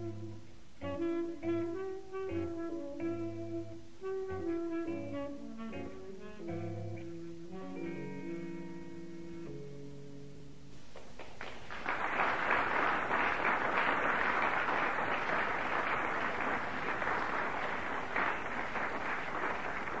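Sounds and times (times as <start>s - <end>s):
guitar music: 0.0s - 10.7s
steady dense noise: 6.4s - 20.0s.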